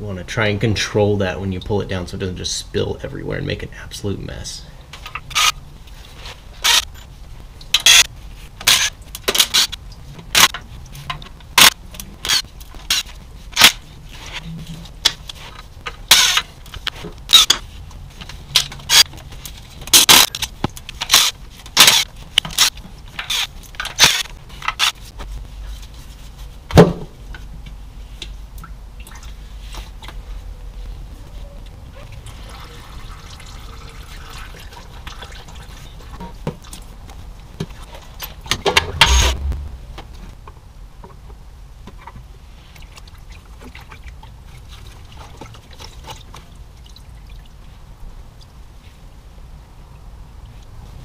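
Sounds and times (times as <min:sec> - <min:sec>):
loud metallic clank: 0:38.7 - 0:40.0.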